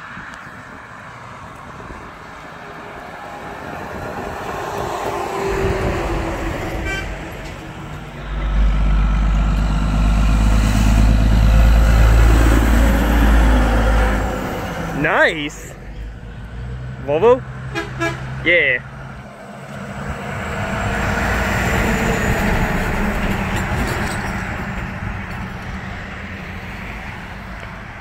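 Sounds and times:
semi truck passing: 0.0s - 28.0s
deep diesel truck rumble: 4.0s - 28.0s
high horn toot: 6.6s - 7.6s, 17.7s - 18.3s.

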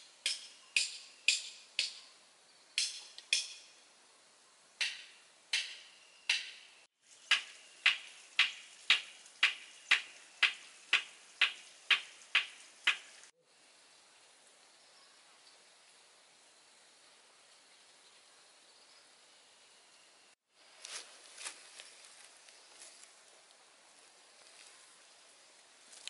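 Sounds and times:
sharp ringing knocks: 4.8s - 6.7s.

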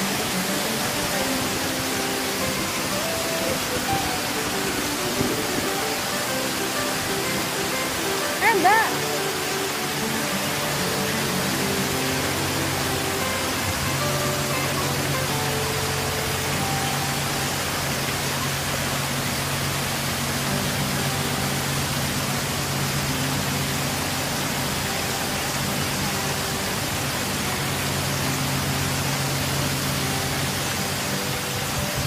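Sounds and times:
faint background music: 0.0s - 32.0s
small waves breaking on beach: 0.0s - 32.0s
wind: 0.0s - 32.0s.

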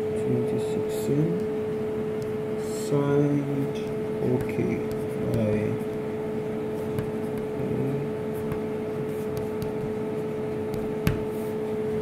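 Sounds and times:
electrical machine hum: 0.0s - 12.0s
sharp tap: 3.8s - 4.6s, 10.7s - 11.3s.

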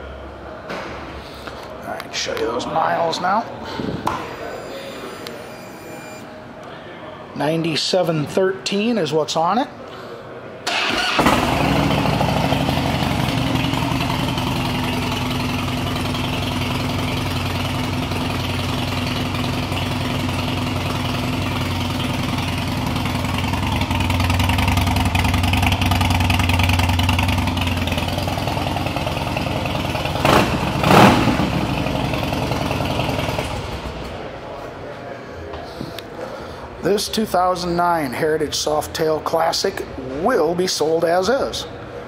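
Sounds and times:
motorcycle engine idling: 11.1s - 34.1s.

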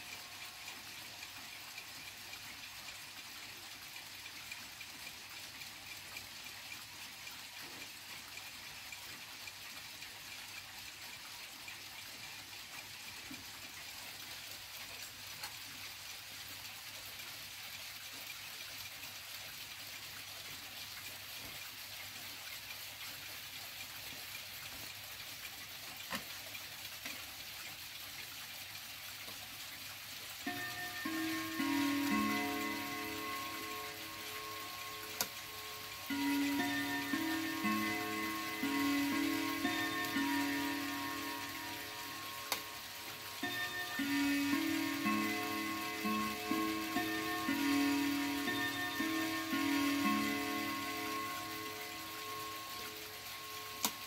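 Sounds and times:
clock ticking: 0.0s - 22.4s, 29.8s - 54.0s
steady hiss: 0.0s - 22.7s, 30.3s - 54.0s
faint ringing tone: 30.5s - 54.0s.

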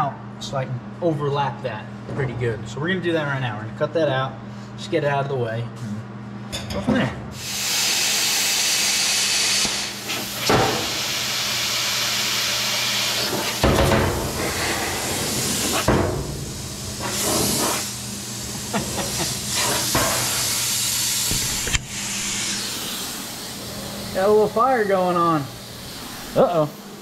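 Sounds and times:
steady low hum: 0.0s - 7.4s, 9.8s - 27.0s
plasma cutter hissing: 7.4s - 27.0s.

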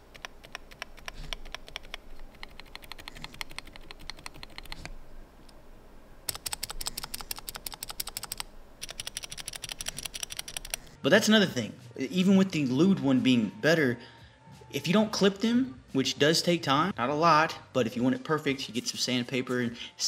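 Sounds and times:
mechanical keyboard keys clacking: 0.0s - 4.9s, 6.3s - 10.9s.

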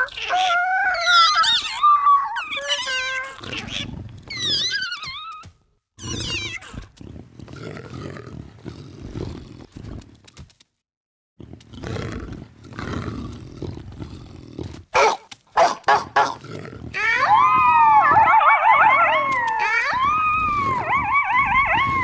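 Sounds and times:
rough animal roar: 16.4s - 22.0s.

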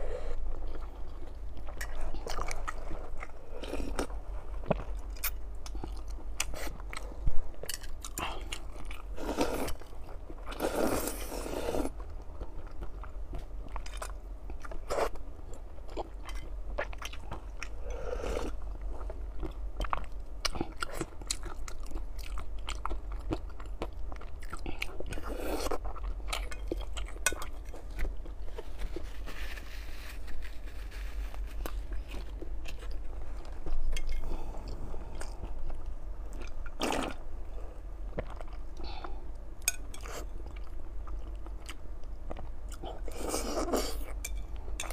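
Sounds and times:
chewing: 0.6s - 29.6s.

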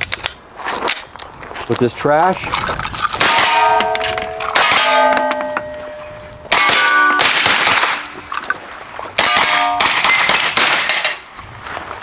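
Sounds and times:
steel plates ringing: 3.1s - 8.5s, 9.2s - 11.2s
rifle shots: 3.2s - 5.2s, 6.5s - 8.1s, 9.2s - 11.2s.

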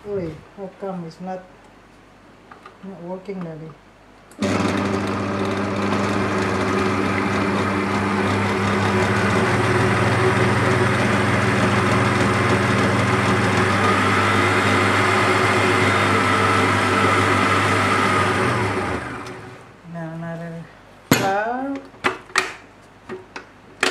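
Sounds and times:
stand mixer motor humming: 4.4s - 19.6s.

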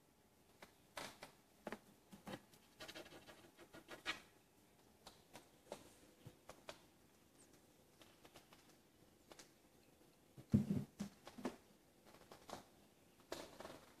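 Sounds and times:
kitten claws scratching carpet: 2.2s - 4.3s.

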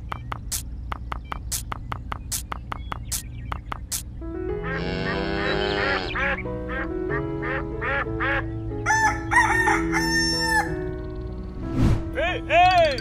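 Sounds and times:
background music: 3.9s - 13.0s
duck quacks: 4.6s - 8.4s
rooster crowing: 8.9s - 10.8s.

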